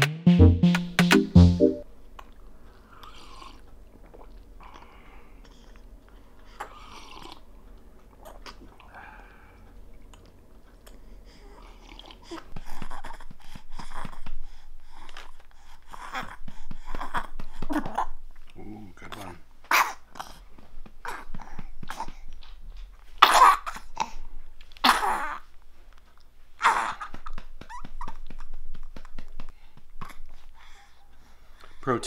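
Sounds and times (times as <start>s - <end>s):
baby sucking and gulping: 6.6s - 7.5s, 11.6s - 14.2s, 30.0s - 30.4s.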